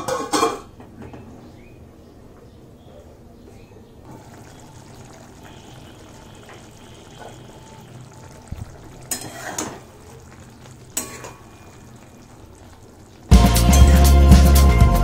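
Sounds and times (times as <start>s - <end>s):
curry bubbling: 4.0s - 14.5s
spatula and pan lid clattering: 9.0s - 9.8s.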